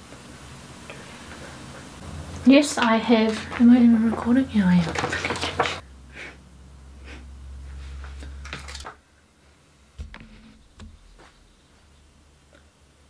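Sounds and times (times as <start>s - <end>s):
low hum: 2.0s - 4.6s, 5.8s - 13.0s
soft knock: 10.0s - 11.6s.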